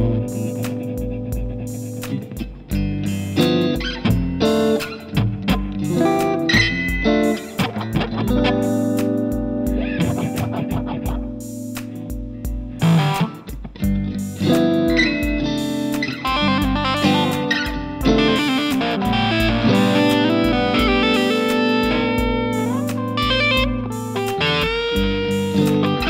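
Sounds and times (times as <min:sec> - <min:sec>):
kick drum beat: 0:00.0 - 0:03.2, 0:03.8 - 0:05.9, 0:06.6 - 0:15.6, 0:16.3 - 0:17.0, 0:17.7 - 0:18.5, 0:19.1 - 0:21.2, 0:21.8 - 0:25.4
bass line: 0:00.0 - 0:26.0
electric guitar playing: 0:00.0 - 0:26.0.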